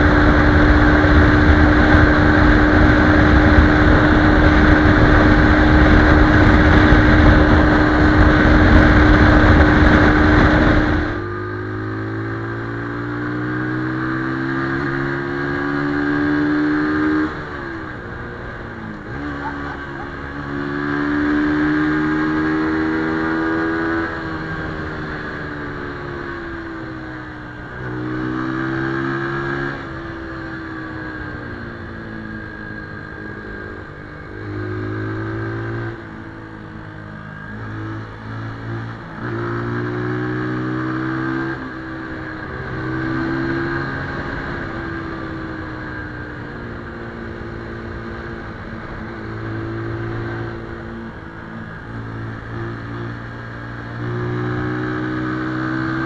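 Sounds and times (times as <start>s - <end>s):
wind noise: 0.0s - 19.3s
motorcycle engine: 0.0s - 56.0s.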